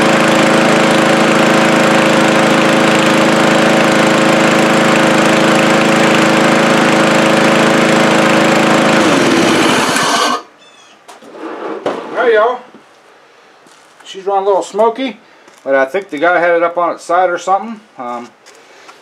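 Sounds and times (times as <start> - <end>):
lawn mower engine running: 0.0 - 10.5.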